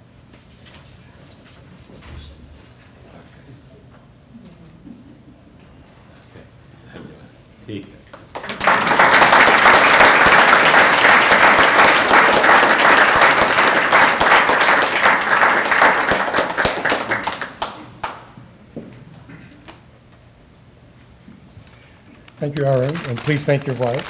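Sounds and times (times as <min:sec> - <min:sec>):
audience applauding: 0:08.3 - 0:18.3, 0:22.6 - 0:24.0.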